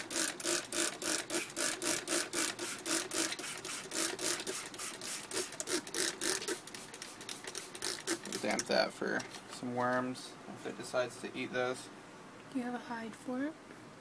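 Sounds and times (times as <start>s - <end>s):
spray bottle squirting water: 0.0s - 8.6s.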